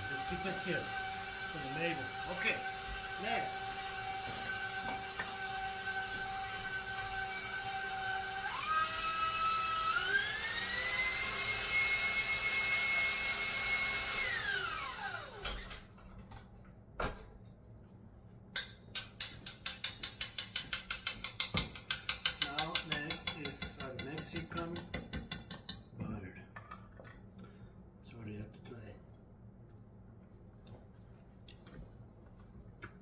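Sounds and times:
stand mixer motor whine: 0:00.0 - 0:15.8
whisk clicking against steel bowl: 0:18.6 - 0:25.9.

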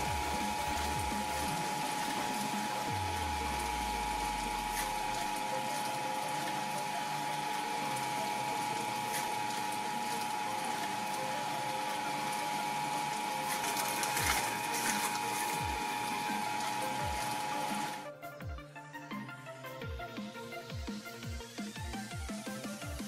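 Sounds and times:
blades crushing fruit: 0:00.0 - 0:18.1
shredder motor whine: 0:00.0 - 0:23.0.

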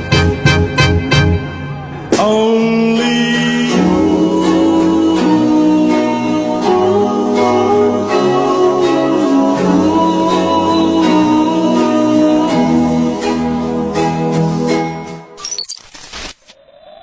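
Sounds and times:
song with guitar and beat: 0:00.0 - 0:02.5.

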